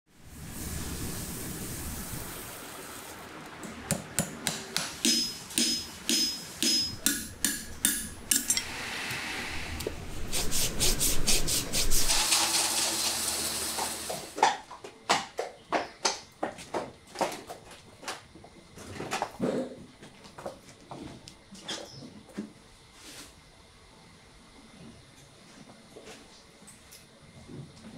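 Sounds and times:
hammer striking metal shoe: 3.9 - 8.7
hot horseshoe hissing on hoof: 5.0 - 14.4
hooves stepping on stall floor: 14.1 - 22.6.

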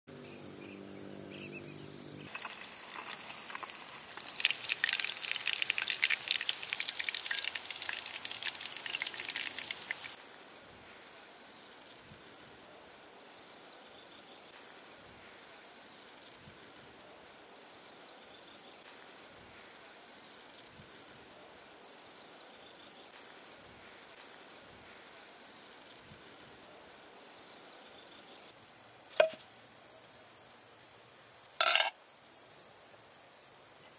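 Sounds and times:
insects buzzing and chirping: 0.1 - 33.9
oil sizzling and crackling: 2.2 - 10.2.

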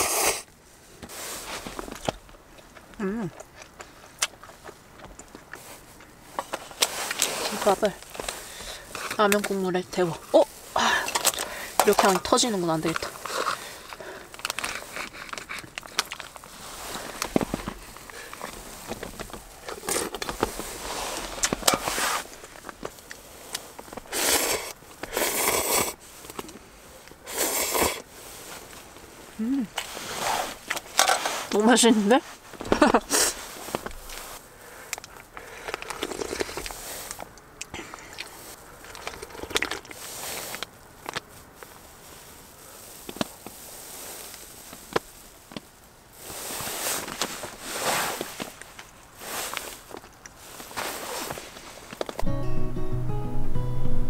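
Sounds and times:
noodles slurped: 0.0 - 0.5, 10.2 - 28.8, 33.0 - 41.3
plastic bag rustling: 3.5 - 25.0, 38.0 - 52.2
clothing rustling: 4.6 - 24.1, 39.9 - 52.2
plastic packet crinkling: 10.3 - 24.8, 37.9 - 41.8.

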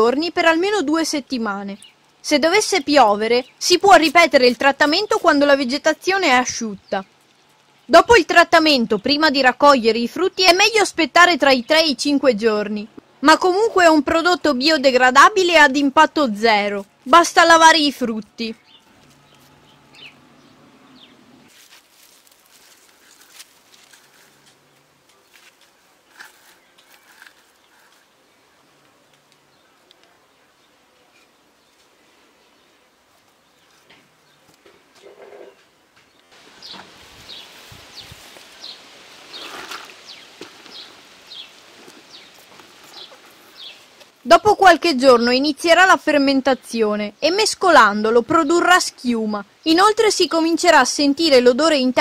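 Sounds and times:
bird chirping: 17.8 - 21.5, 33.4 - 44.0
soft rustles: 21.5 - 28.2, 36.4 - 44.2.

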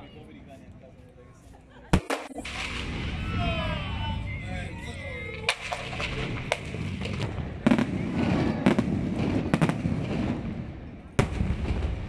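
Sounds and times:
sharp fireworks bangs: 1.9 - 4.3, 5.4 - 12.0
fireworks shell bursts rumbling: 2.0 - 3.2, 5.4 - 10.4.

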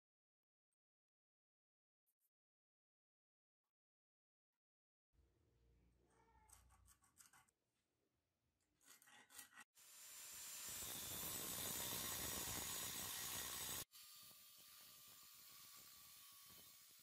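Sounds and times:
pencil scratching on steel: 6.2 - 7.6, 8.6 - 9.7
angle grinder cutting steel: 9.0 - 17.0.

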